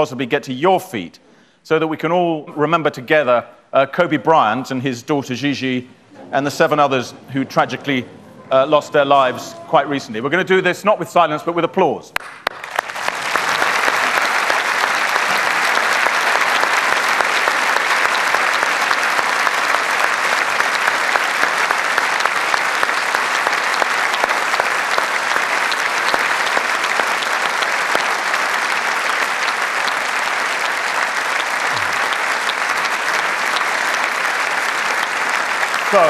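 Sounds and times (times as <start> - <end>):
large audience applauding: 12.2 - 36.0.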